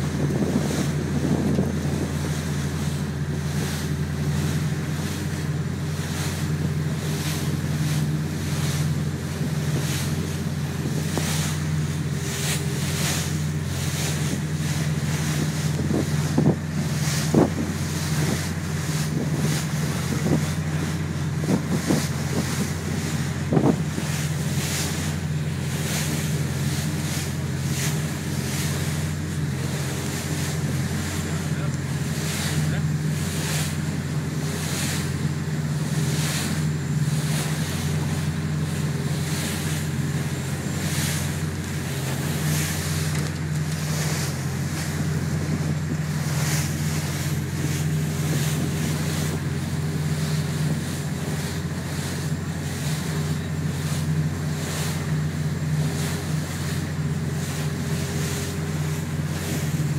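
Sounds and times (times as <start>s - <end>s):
wind buffeting microphone: 0.0s - 54.0s
motorboat engine running: 0.0s - 59.9s
water splashing along hull: 0.0s - 59.9s
hull thumping: 7.3s - 57.0s.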